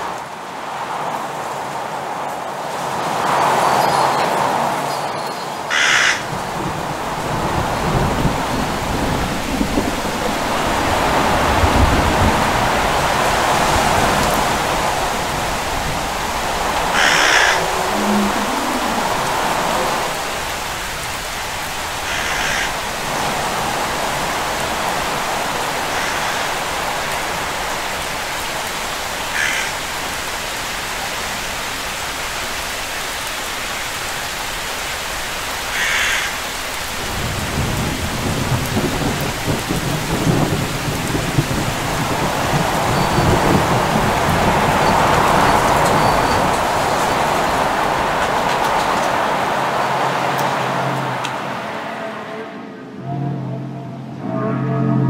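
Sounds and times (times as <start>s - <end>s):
steady rain: 0.0s - 53.0s
thunder rumbling: 6.2s - 31.0s, 36.9s - 52.1s.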